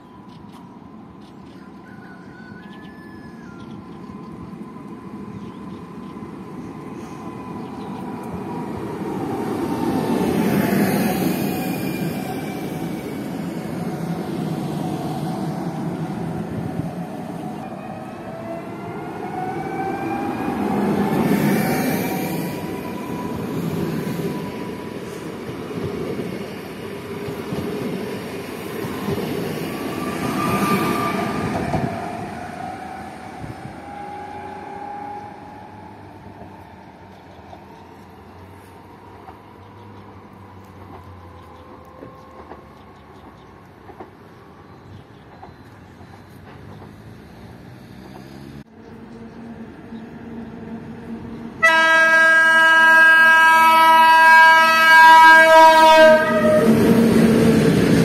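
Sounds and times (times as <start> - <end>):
train wheels rumbling: 3.7 - 58.0.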